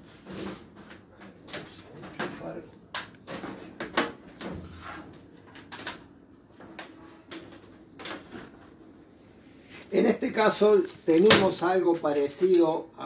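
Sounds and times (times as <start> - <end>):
light knocks and clatters: 0.2 - 9.0.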